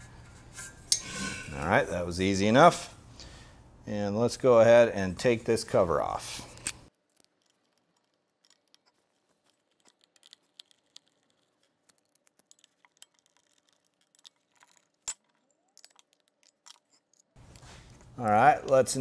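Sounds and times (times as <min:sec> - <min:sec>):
small metallic clicks and clinks: 0:06.5 - 0:18.9.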